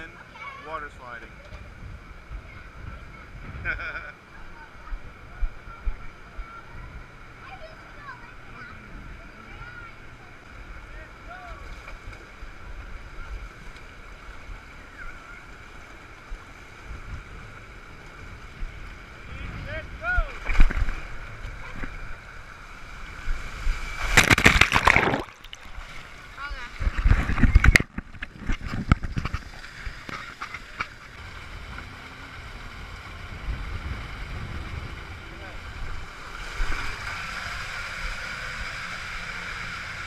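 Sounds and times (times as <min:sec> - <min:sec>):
water rushing down slide: 0:09.4 - 0:40.0
wind buffeting microphone: 0:26.6 - 0:29.5, 0:31.2 - 0:36.8.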